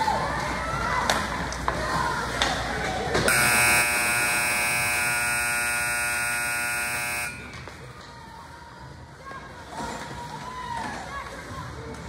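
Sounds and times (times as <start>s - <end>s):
scoreboard buzzer: 3.3s - 7.6s.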